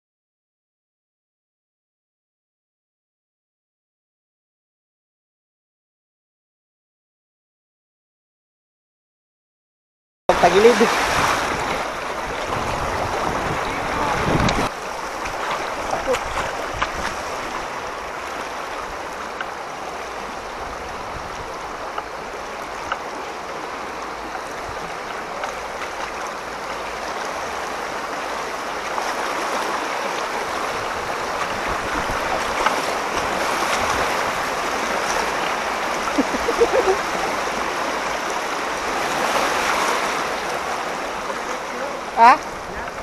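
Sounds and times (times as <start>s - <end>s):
floodwater rushing: 10.3s - 43.0s.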